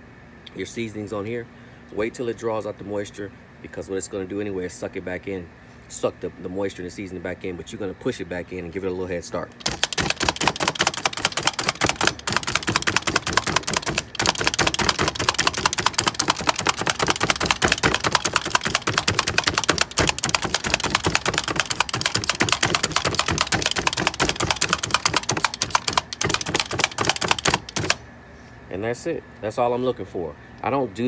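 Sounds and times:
meat tenderizer clacking: 9.6 - 28.0.

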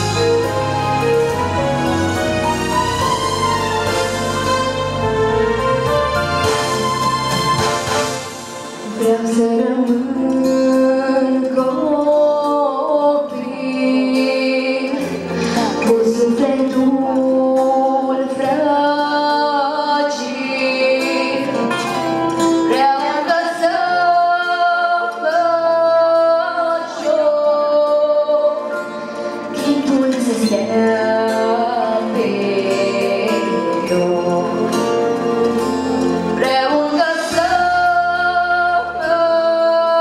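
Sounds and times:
instrumental accompaniment: 0.0 - 40.0
girl singing into microphone: 8.8 - 21.8, 22.4 - 35.8, 36.4 - 40.0.

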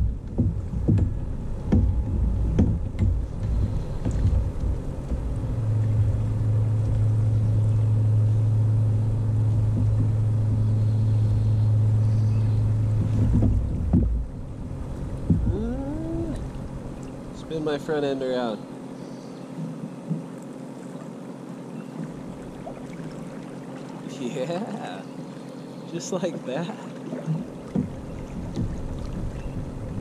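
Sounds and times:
kayak hull knocking: 0.0 - 6.2, 9.6 - 10.9, 12.9 - 17.1, 19.6 - 20.4, 27.0 - 30.0
steady low hum: 0.0 - 30.0.

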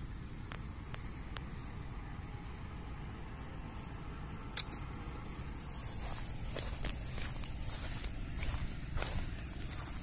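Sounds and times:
faint low rumble: 0.0 - 10.0
slingshot snap: 4.6 - 4.8.

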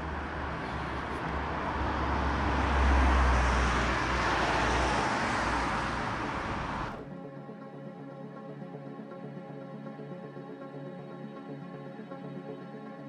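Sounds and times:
car passing by: 0.0 - 7.0.

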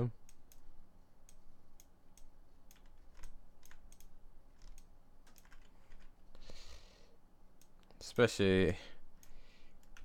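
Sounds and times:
faint steady hum: 0.0 - 10.0
computer keyboard clicks: 1.3 - 6.1.

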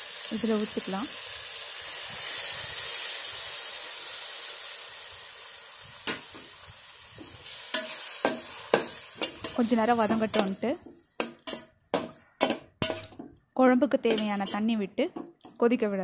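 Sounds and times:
liquid sizzling in hot oil: 0.0 - 15.7
steel spoon knocking against pan: 7.8 - 13.4, 14.1 - 15.5.

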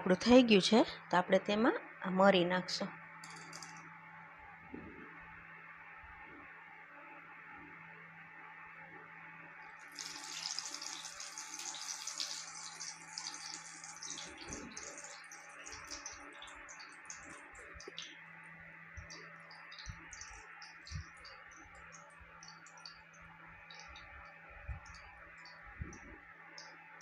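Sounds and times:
peppercorns sizzling in hot oil: 9.8 - 18.3, 18.9 - 25.6.

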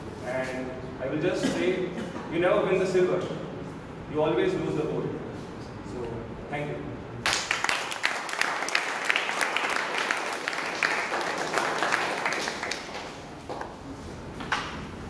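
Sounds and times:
audience applauding: 7.2 - 13.6.

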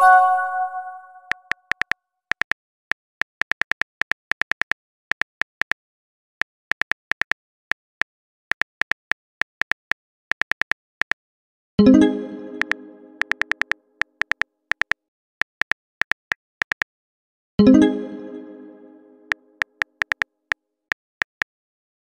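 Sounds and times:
plucked notification tone: 0.0 - 1.4
keyboard key clicks: 1.3 - 2.6, 12.6 - 16.9, 19.6 - 20.2.

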